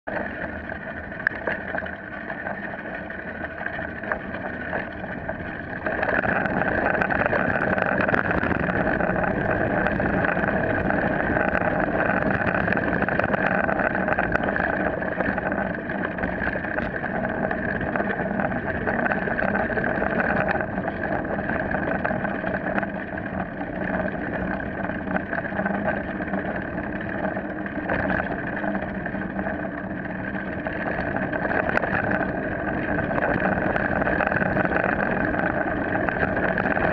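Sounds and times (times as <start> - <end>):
mountain bike tyres rumbling: 0.1 - 36.9.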